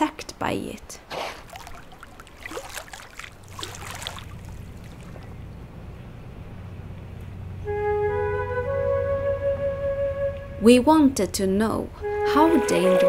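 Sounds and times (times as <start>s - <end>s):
dolphin splashing: 1.0s - 5.6s
water lapping against hull: 1.0s - 5.6s
steady low hum: 1.4s - 12.2s.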